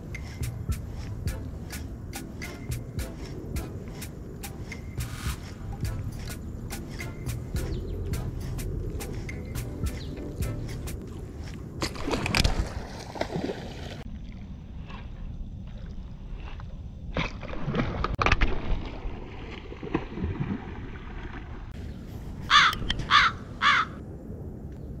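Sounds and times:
fish splashing in water: 0:11.1 - 0:14.4
crow cawing: 0:22.5 - 0:24.0.

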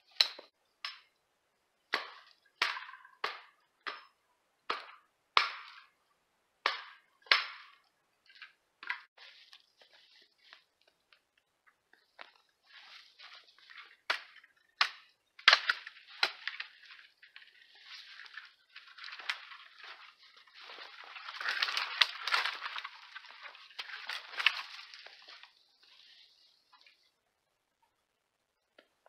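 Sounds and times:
hatchet chopping wood: 0:01.9 - 0:05.9, 0:06.6 - 0:07.8, 0:14.0 - 0:16.8
snow and brush crunching: 0:09.2 - 0:11.2, 0:11.9 - 0:27.2.

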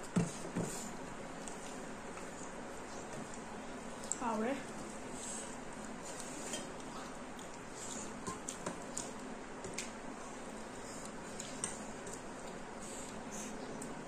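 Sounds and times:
chewing and mouth smacking: 0:05.6 - 0:10.0.

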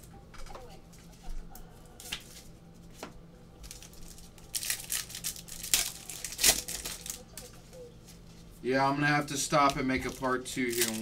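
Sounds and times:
card pack wrapper tearing: 0:03.6 - 0:07.5, 0:09.6 - 0:11.0.

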